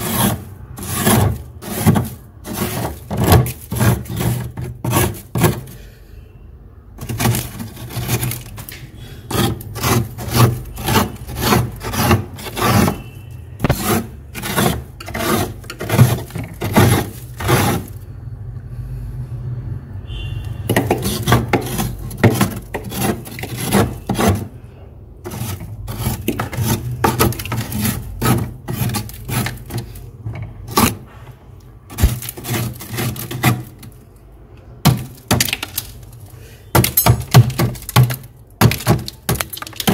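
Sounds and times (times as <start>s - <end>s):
frost scraping rasps: 0.0s - 5.8s, 7.0s - 18.0s, 20.7s - 24.6s, 25.2s - 31.1s, 31.9s - 34.0s.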